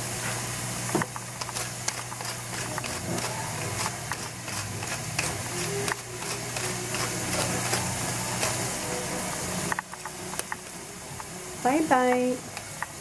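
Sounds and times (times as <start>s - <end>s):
spice grinder clicking: 1.0s - 8.6s.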